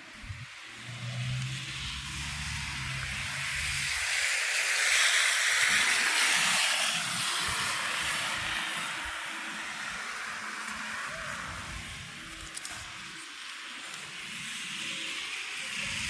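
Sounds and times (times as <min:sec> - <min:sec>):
tyres hissing on snowy street: 0:00.0 - 0:16.0
low engine hum: 0:00.1 - 0:04.1.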